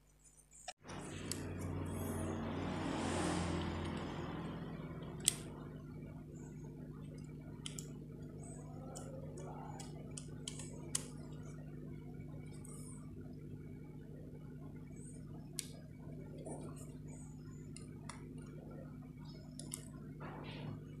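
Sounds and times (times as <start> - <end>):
low steady hum: 0.0 - 21.0
rush of noise: 1.1 - 4.9.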